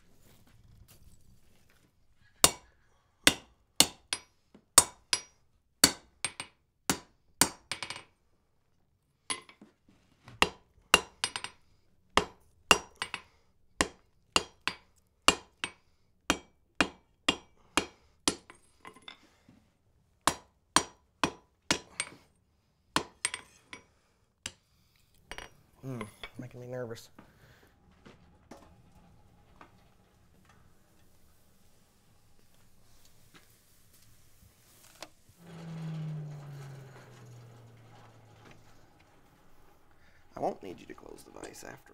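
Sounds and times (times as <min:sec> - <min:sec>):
hammer striking iron on anvil: 0:10.4 - 0:11.4, 0:16.3 - 0:18.5.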